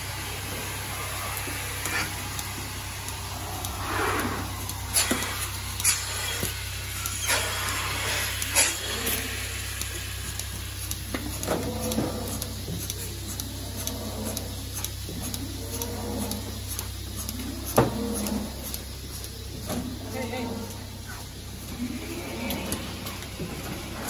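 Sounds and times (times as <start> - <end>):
hoses and fittings rattling: 0.0 - 12.9
air hissing: 0.0 - 19.7
vacuum system hum: 0.0 - 24.0.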